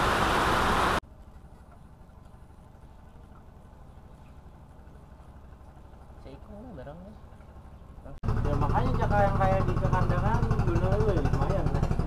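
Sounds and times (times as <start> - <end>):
heavy rain: 0.0 - 1.0.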